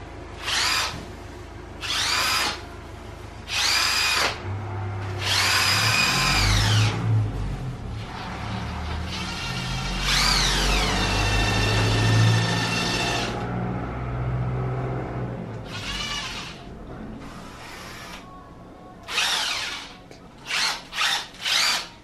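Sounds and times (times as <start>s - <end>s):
cordless drill motor whirring: 0.4s - 1.0s, 1.8s - 2.6s, 3.5s - 4.4s, 5.1s - 7.0s, 9.1s - 13.5s, 15.6s - 16.6s, 17.3s - 18.2s, 19.1s - 21.9s.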